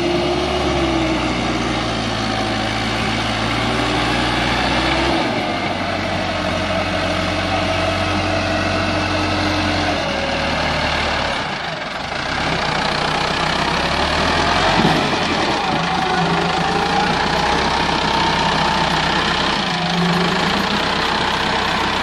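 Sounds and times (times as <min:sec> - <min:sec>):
tractor diesel engine under load: 0:00.0 - 0:22.0.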